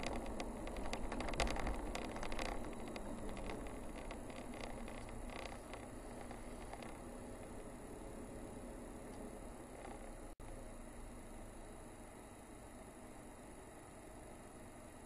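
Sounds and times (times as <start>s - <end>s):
light rattles and clicks: 0.0s - 8.1s, 9.1s - 10.6s
car tyre and engine noise: 0.0s - 15.0s.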